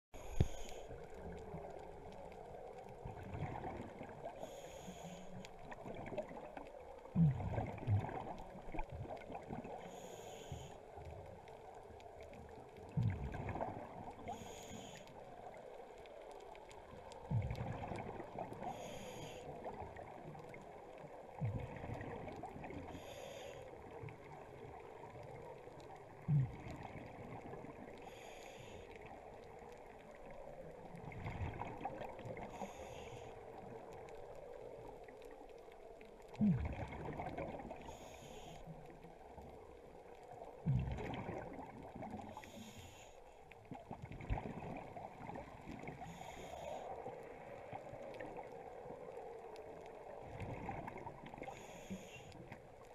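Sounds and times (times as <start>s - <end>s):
underwater hiss: 0.2s - 1.4s, 4.3s - 5.5s, 9.3s - 11.0s, 13.5s - 15.1s, 17.7s - 19.8s, 22.5s - 23.9s, 27.8s - 29.2s, 32.4s - 34.5s, 37.1s - 39.2s, 41.9s - 43.4s, 45.8s - 52.6s.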